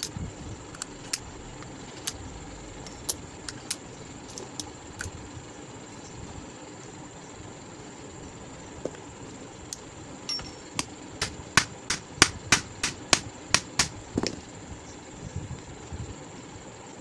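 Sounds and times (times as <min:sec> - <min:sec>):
small hammer tapping metal: 0:10.3 - 0:14.4.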